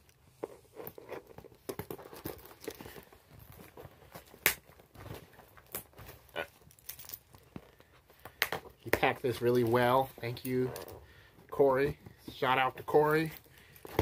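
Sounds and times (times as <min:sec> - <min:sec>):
packing material rustling and tearing: 0:00.0 - 0:11.0.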